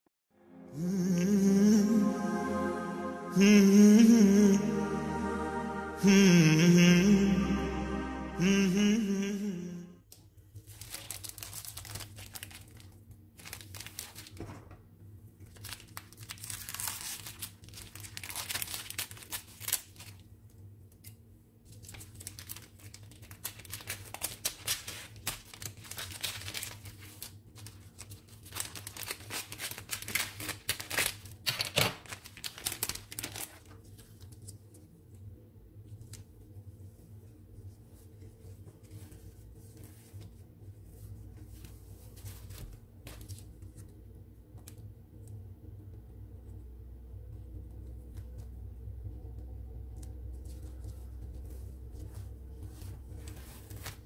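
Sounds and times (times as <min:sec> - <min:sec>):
plastic wrapper crinkling: 0:10.6 - 0:14.4, 0:15.5 - 0:20.2, 0:21.7 - 0:34.3.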